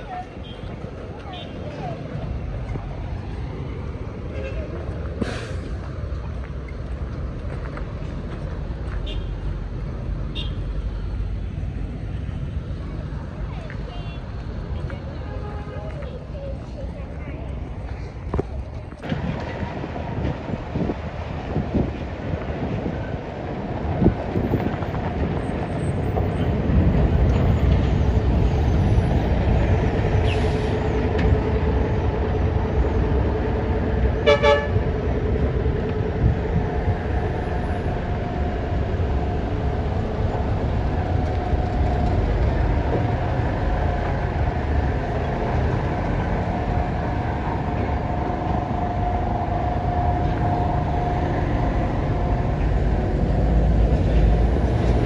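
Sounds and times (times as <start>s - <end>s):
road noise rumble: 0.0s - 55.0s
vehicle horn toot: 34.2s - 34.8s.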